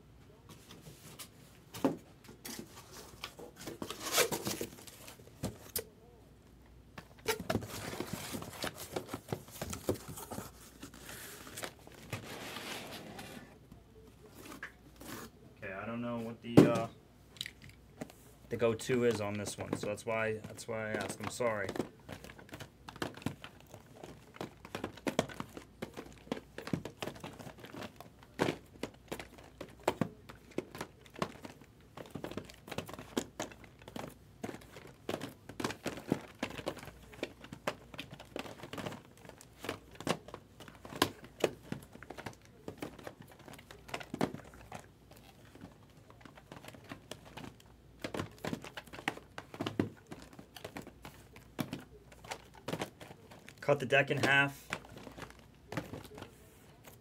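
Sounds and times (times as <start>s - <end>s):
boxes knocking and scraping: 7.2s - 13.6s, 16.5s - 16.9s, 18.6s - 57.0s
shrink wrap crinkling: 18.5s - 57.0s.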